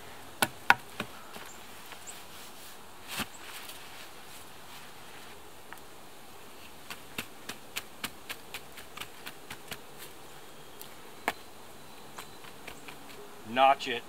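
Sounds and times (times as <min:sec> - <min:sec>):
stick jabbing into dry dirt: 0:06.8 - 0:09.8.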